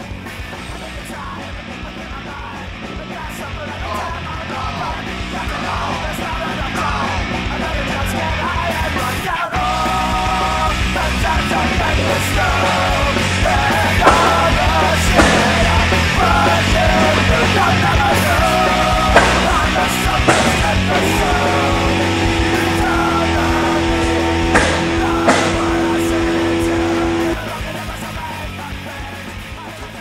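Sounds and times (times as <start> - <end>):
loud punk rock song: 0.0 - 30.0
person singing: 0.7 - 30.0.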